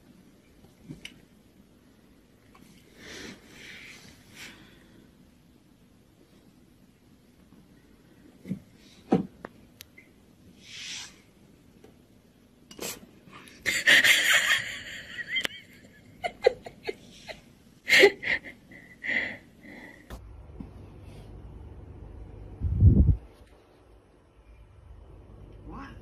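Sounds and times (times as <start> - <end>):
person laughing wheezily: 16.2 - 19.4.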